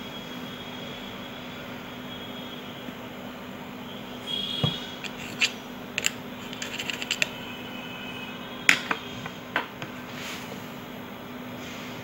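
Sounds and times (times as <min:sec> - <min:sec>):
screwdriver clicking and scraping: 0:05.0 - 0:07.4.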